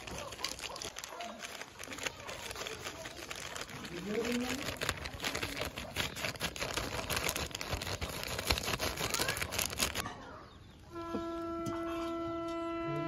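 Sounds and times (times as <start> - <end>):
plastic snack packet crinkling: 0.0 - 10.0.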